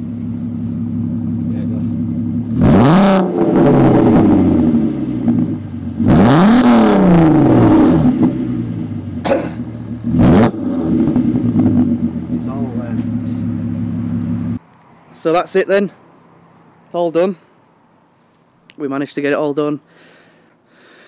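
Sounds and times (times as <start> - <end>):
car engine idling: 0.0 - 14.6
car engine revving: 0.0 - 14.6.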